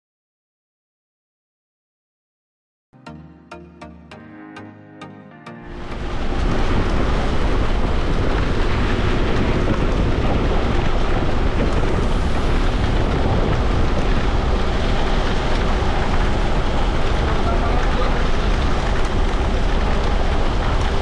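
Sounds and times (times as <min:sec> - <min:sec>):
wind buffeting microphone: 0:05.9 - 0:21.0
road noise in moving van: 0:06.0 - 0:21.0.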